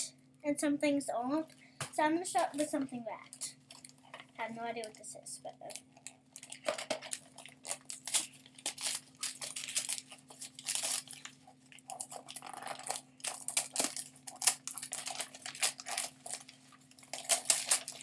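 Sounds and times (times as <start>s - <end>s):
faint low hum: 0.0s - 18.0s
wrapping paper tearing and crumpling: 5.6s - 18.0s.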